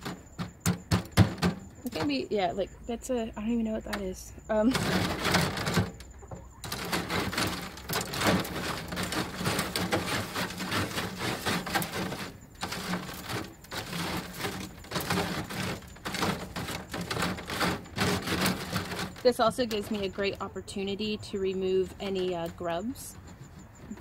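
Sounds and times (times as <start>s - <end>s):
metal tines scraping on wire mesh: 6.6s - 20.1s.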